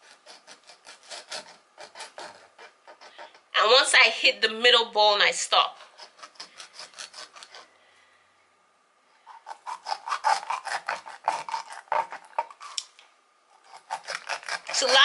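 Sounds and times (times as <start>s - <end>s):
knife sawing fish on board: 0.0s - 3.3s, 5.8s - 7.7s, 9.3s - 12.8s, 13.6s - 15.0s.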